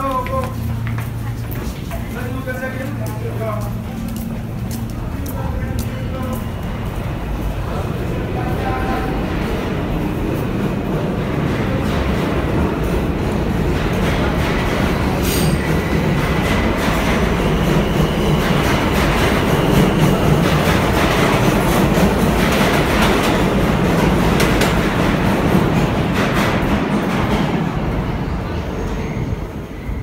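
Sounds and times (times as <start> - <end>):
sharp clicks of train: 0.0 - 6.9, 11.5 - 27.6
train wheels rumbling on rails: 0.0 - 30.0.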